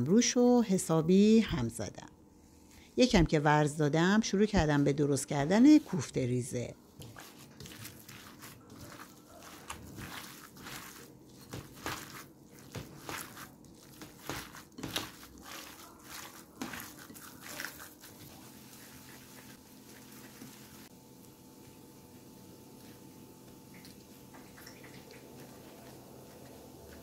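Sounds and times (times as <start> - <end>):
hands squishing ground meat: 6.9 - 20.9.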